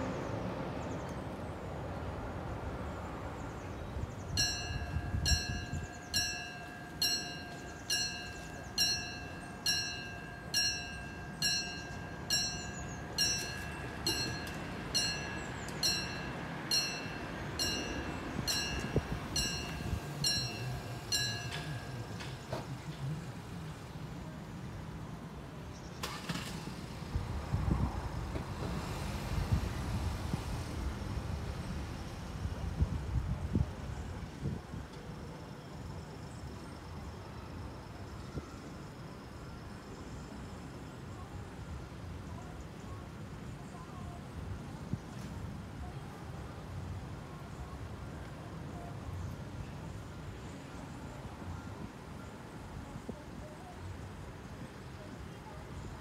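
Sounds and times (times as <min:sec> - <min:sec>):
mechanical warning bell ringing: 0:04.4 - 0:22.5.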